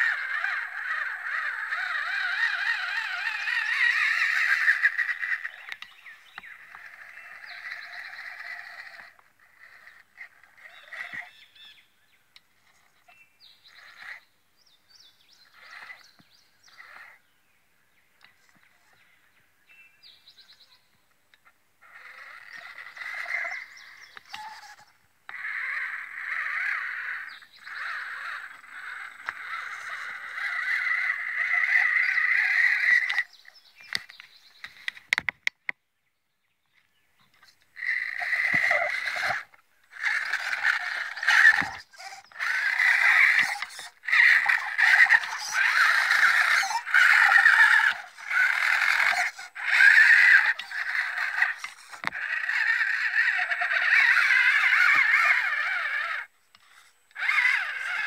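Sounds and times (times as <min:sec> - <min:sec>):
toy car electric motor whining: 0:00.0 - 0:11.7, 0:15.5 - 0:17.2, 0:21.8 - 0:35.0, 0:37.4 - 0:58.0
sharp clicks: 0:33.8 - 0:35.8.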